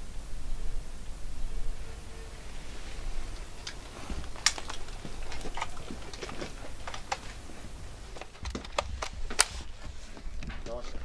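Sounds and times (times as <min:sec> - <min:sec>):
rifle handling clicks and taps: 0:03.6 - 0:09.7.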